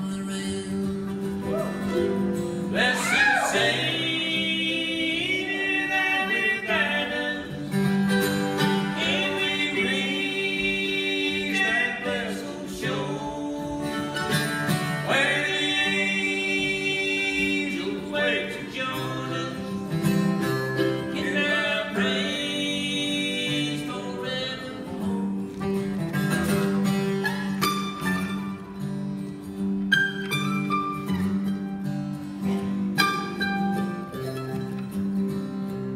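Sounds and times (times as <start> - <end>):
man singing: 0.0 - 1.6, 2.6 - 7.8, 8.6 - 20.1, 20.8 - 25.3
acoustic guitar strumming: 0.0 - 35.9
mandolin: 0.0 - 35.9.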